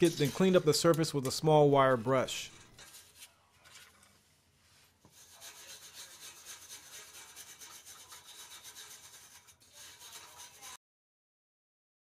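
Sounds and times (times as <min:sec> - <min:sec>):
wire brush scrubbing metal: 0:00.0 - 0:03.3, 0:05.1 - 0:10.8.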